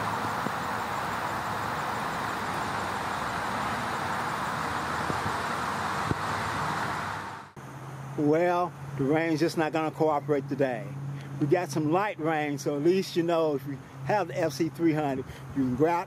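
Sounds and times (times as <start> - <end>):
light rain on foliage: 0.0 - 7.6.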